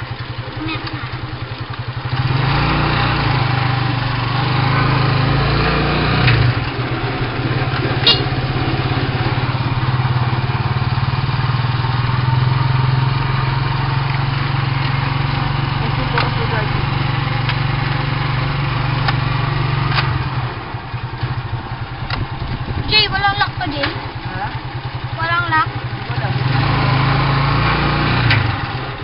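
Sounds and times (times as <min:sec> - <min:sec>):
motorcycle engine putter: 0:00.0 - 0:02.3, 0:06.2 - 0:08.7, 0:14.1 - 0:18.0, 0:19.0 - 0:20.3, 0:21.1 - 0:22.8
road noise: 0:00.0 - 0:29.0
wind noise: 0:21.9 - 0:23.4.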